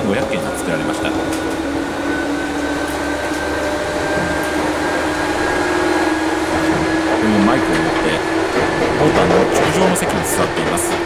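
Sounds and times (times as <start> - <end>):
train running rumble: 0.0 - 11.0
train traction motor whine: 0.0 - 11.0.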